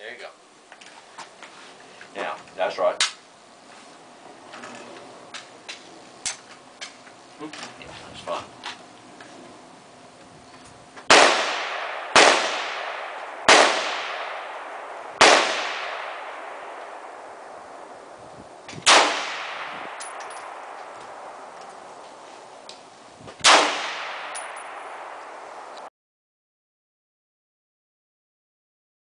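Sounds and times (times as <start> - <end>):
rifle shots with echo: 11.1 - 17.9, 18.8 - 21.6, 23.4 - 25.4.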